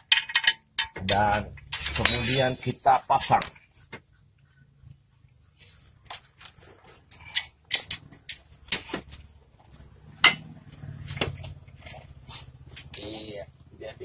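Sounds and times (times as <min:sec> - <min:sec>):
metal clicks and knocks: 0:00.0 - 0:02.5.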